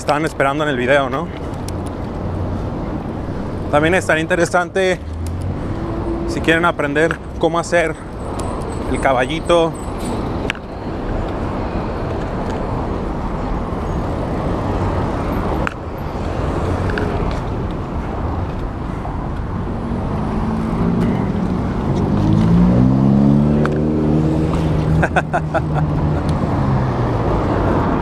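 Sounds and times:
wind and rolling noise: 0.0 - 28.0
vehicle engine accelerating: 19.6 - 28.0.

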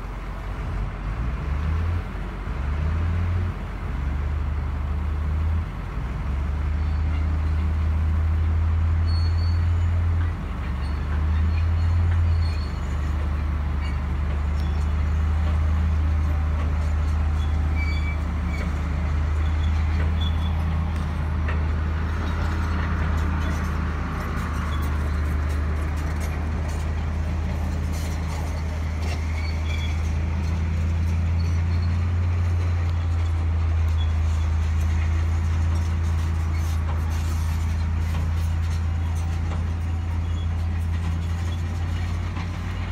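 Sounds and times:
truck engine droning: 0.0 - 42.9.

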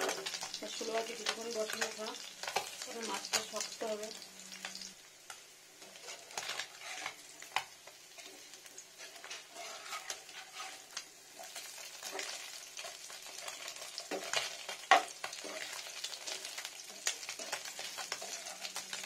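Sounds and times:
fish sizzling in oil: 0.0 - 19.0
spatula scraping the pan: 5.8 - 19.0.

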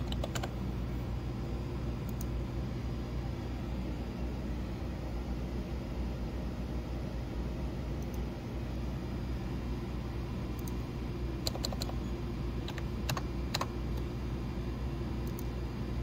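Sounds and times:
keyboard and mouse clicks: 0.0 - 0.6, 10.6 - 10.8, 11.4 - 12.0, 12.6 - 14.1.

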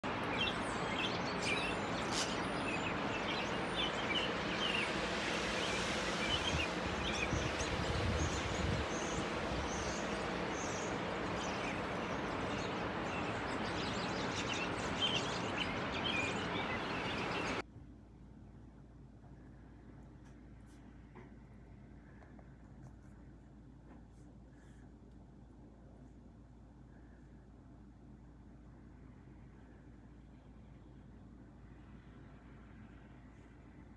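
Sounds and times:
flock of birds chirping: 0.0 - 17.6
steady background hiss: 0.0 - 17.7.

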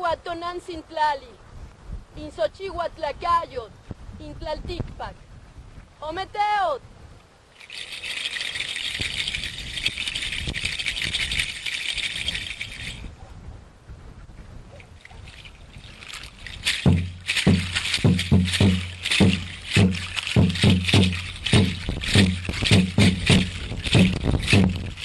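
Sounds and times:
rattles shaking: 7.5 - 13.1, 15.0 - 25.0
deep drum beat: 16.6 - 25.0.

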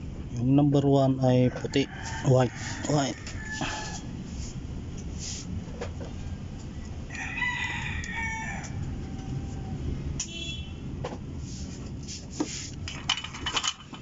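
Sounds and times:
rooster crowing: 1.3 - 4.2, 7.0 - 10.0.

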